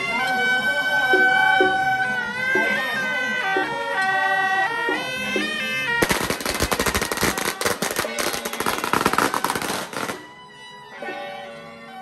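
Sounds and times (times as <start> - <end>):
shrill wind instrument music: 0.0 - 12.0
firecrackers crackling: 6.0 - 10.3.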